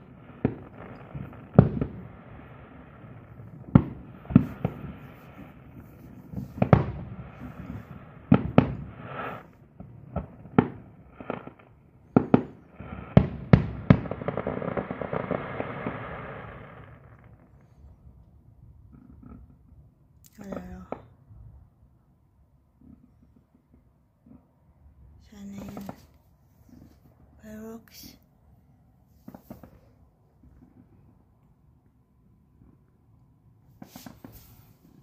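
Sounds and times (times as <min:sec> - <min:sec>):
fireworks crackling: 0:00.0 - 0:18.0, 0:25.3 - 0:28.2, 0:29.2 - 0:31.1, 0:33.7 - 0:35.0
fireworks booming: 0:00.0 - 0:18.2, 0:25.3 - 0:26.1, 0:29.2 - 0:31.0, 0:33.8 - 0:35.0.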